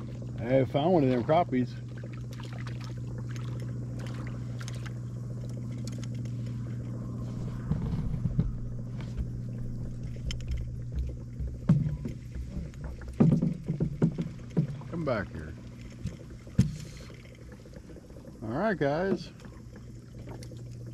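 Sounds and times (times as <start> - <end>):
fish splashing: 0.0 - 18.4
trolling motor hum: 0.0 - 20.9.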